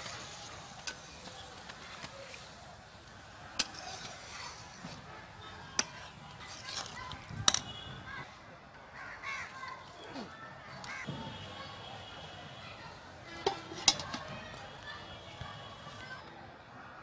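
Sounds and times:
metal spatula stirring curry: 3.2 - 7.6, 13.3 - 14.2.

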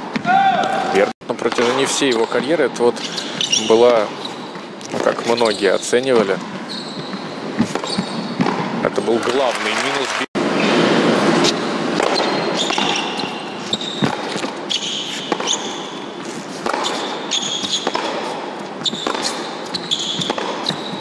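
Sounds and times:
shoe squeaks on court: 1.6 - 8.5, 11.4 - 21.0
ball bouncing: 6.2 - 9.4, 11.4 - 21.0
racket striking ball: 6.4 - 9.4, 10.7 - 21.0.

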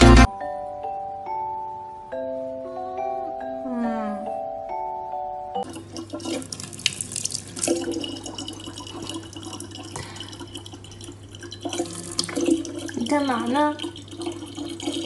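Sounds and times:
tap water running into bottle: 5.6 - 15.0.

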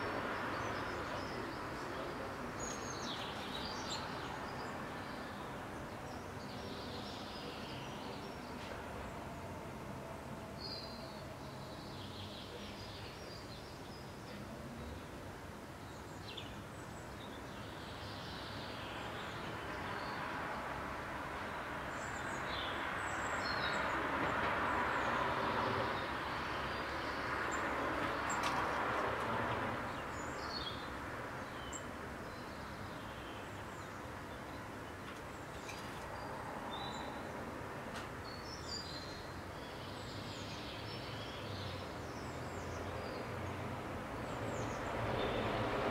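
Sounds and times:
small songbirds chirping: 0.0 - 9.4, 10.0 - 45.9
city background noise: 0.0 - 45.9
distant vehicle passing: 19.6 - 31.5, 41.4 - 45.9.

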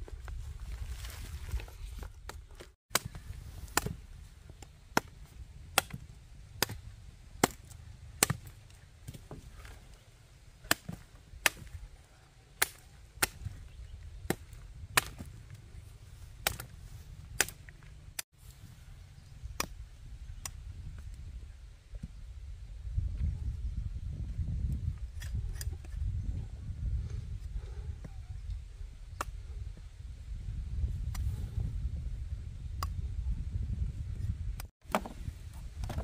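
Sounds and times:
machete chopping: 2.9 - 4.0, 4.6 - 6.8, 7.4 - 9.8, 10.6 - 11.8, 12.5 - 13.6, 14.3 - 15.4, 16.4 - 18.2.

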